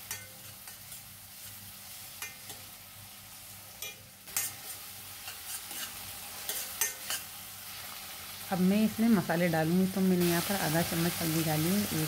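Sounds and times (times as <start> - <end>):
vegetables sizzling in hot oil: 0.0 - 12.0
metal spoon scraping pan: 3.8 - 7.3.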